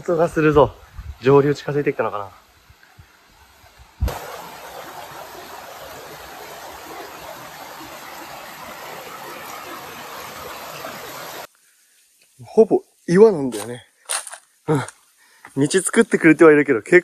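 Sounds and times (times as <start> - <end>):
stream rushing over rocks: 3.1 - 11.5.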